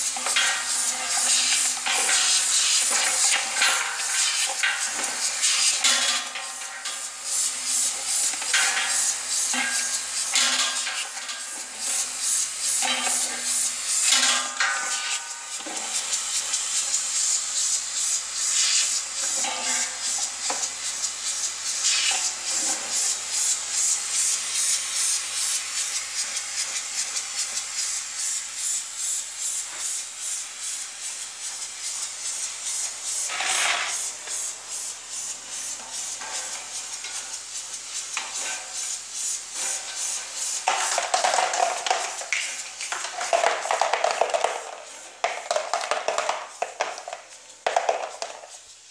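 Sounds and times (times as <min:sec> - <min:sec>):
caps clacking: 0:39.6 - 0:48.5
plastic caps rattling in steel bowl: 0:40.6 - 0:48.6.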